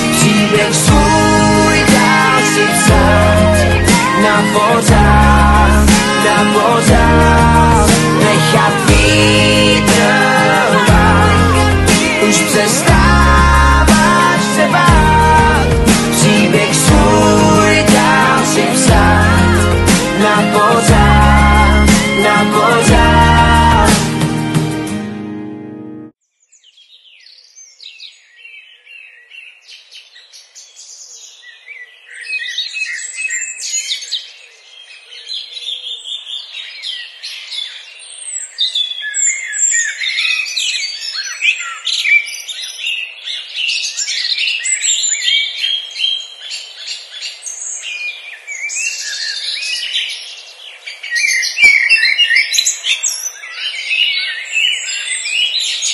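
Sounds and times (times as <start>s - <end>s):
songbirds chirping: 26.3s - 55.9s.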